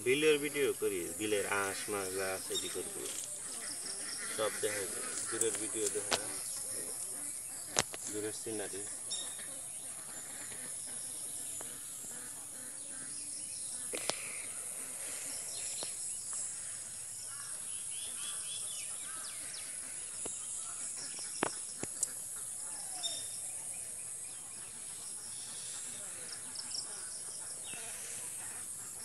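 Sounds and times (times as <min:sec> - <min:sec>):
insect drone: 0:00.0 - 0:29.0
bird chirps: 0:00.9 - 0:29.0.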